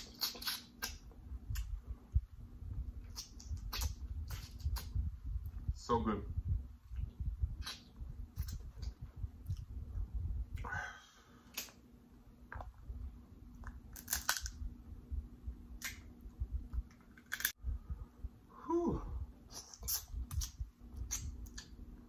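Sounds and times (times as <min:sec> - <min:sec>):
wet mouth clicks and lip smacks: 0:00.0 - 0:01.8, 0:03.0 - 0:05.0, 0:07.6 - 0:09.7, 0:11.5 - 0:11.8, 0:19.5 - 0:21.8.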